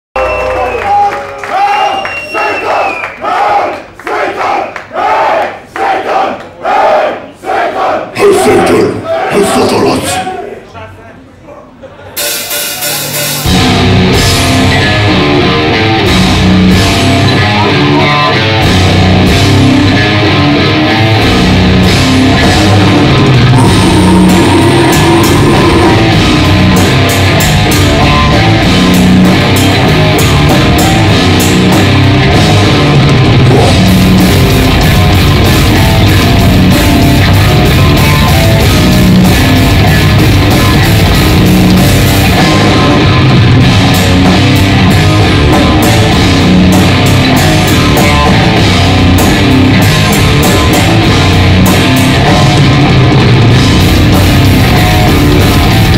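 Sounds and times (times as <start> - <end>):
bass guitar: 12.2 - 55.9
distorted electric guitar: 12.2 - 55.9
drum kit: 12.2 - 55.9.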